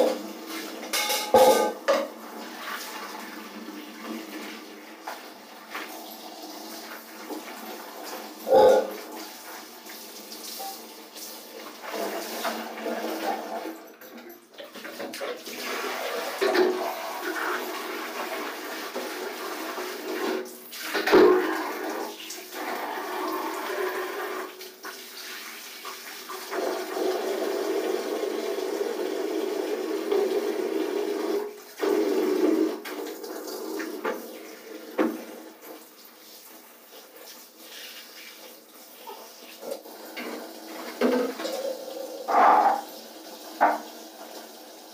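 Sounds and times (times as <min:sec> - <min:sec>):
tap water running: 0:00.0 - 0:44.9
water sloshing and splashing: 0:06.7 - 0:16.8.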